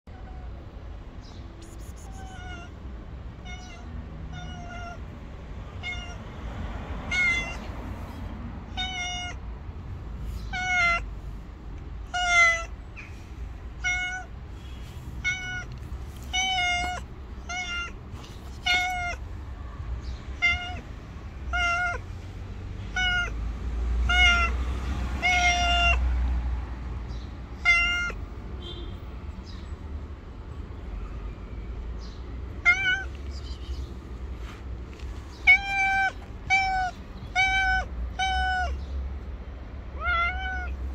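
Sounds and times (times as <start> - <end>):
cat meowing: 1.6 - 2.8, 3.4 - 5.1, 5.7 - 6.2, 7.1 - 7.7, 8.7 - 9.4, 10.4 - 11.1, 12.0 - 13.0, 13.8 - 14.4, 15.2 - 19.3, 20.0 - 20.9, 21.5 - 22.1, 22.9 - 23.4, 24.0 - 24.6, 25.2 - 26.0, 27.6 - 28.2, 32.6 - 33.6, 35.4 - 38.9, 39.9 - 40.9.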